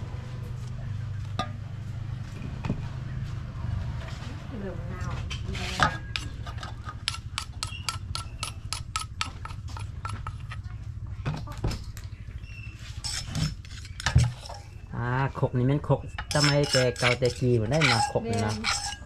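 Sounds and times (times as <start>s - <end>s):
utensil clinking against a bowl: 5.7s - 10.6s, 13.0s - 14.8s, 15.9s - 19.0s.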